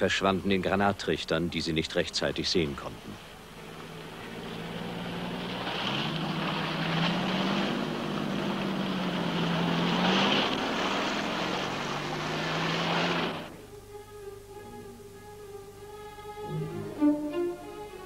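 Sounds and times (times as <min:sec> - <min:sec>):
splashing water: 0:02.9 - 0:13.5
lorry engines droning: 0:02.9 - 0:18.0.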